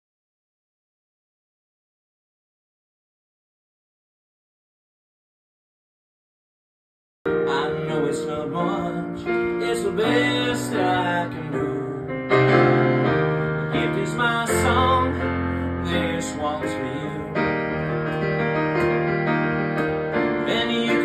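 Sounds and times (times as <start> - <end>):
man singing: 7.3 - 18.2, 20.2 - 21.0
electric piano chords: 7.3 - 21.0.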